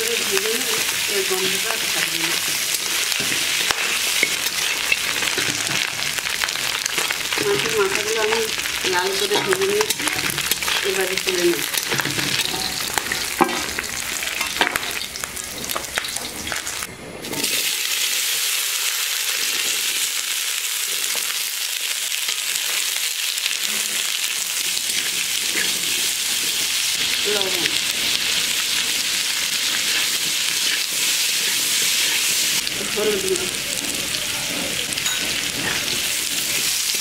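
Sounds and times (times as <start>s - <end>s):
food sizzling in oil: 0.0s - 37.0s
spatula scraping a pan: 2.3s - 7.7s, 9.1s - 13.8s, 24.8s - 26.8s, 27.9s - 32.7s, 33.8s - 37.0s.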